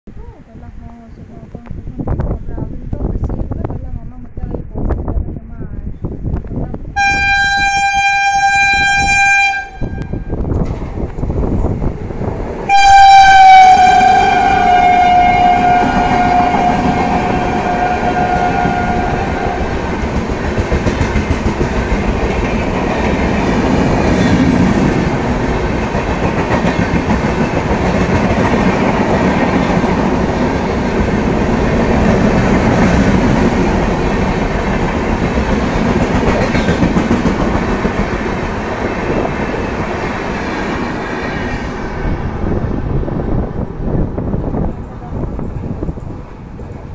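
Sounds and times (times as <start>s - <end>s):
locomotive horn blast: 7.0s - 10.4s, 12.7s - 19.8s
train coaches rushing past: 7.0s - 46.9s.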